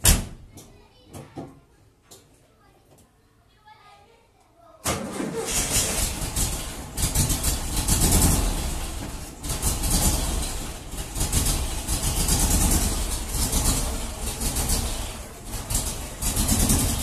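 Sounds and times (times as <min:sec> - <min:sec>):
car engine running unevenly: 0:05.4 - 0:17.0.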